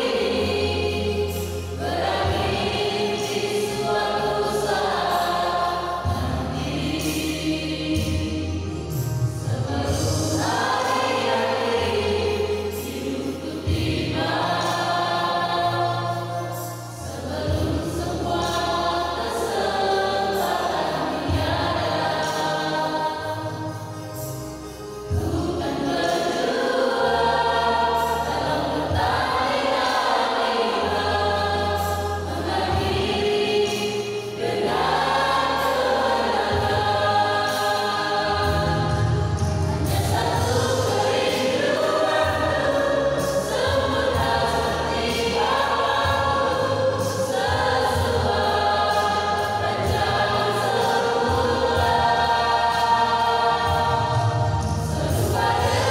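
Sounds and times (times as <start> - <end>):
choir singing: 0.0 - 55.9
steady low notes: 34.3 - 55.9.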